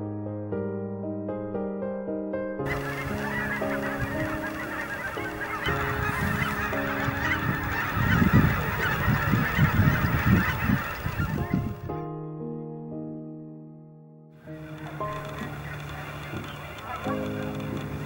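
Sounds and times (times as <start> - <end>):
soft piano music: 0.0 - 18.0
geese honking: 2.7 - 12.0, 14.4 - 18.0.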